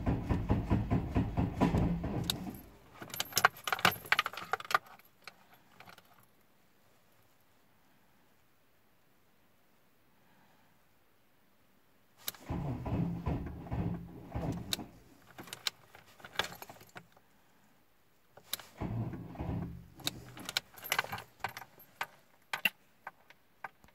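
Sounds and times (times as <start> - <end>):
car engine cranking: 0.0 - 4.7, 12.3 - 16.9, 18.4 - 22.7.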